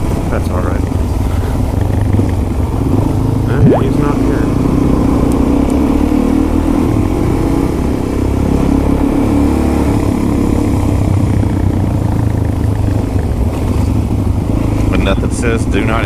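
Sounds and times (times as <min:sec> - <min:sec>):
wind and road noise: 0:00.0 - 0:16.0
motorcycle engine running: 0:10.9 - 0:16.0.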